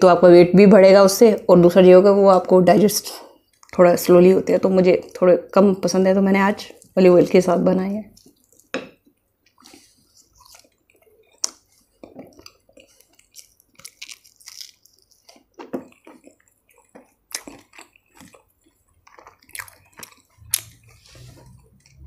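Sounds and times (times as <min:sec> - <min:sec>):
person chewing food: 0:03.3 - 0:03.8, 0:08.1 - 0:22.0
wet mouth smacks and clicks: 0:19.1 - 0:21.0.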